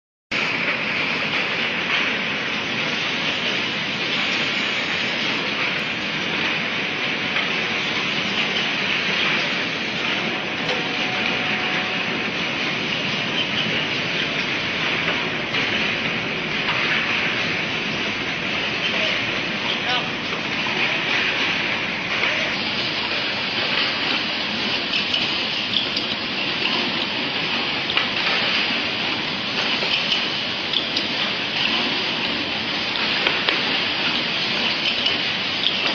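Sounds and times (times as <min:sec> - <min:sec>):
machine running with steady hiss: 0:00.3 - 0:35.9.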